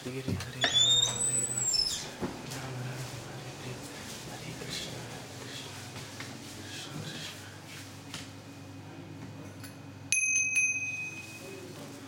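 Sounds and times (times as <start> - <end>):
small bell ringing: 10.1 - 11.6.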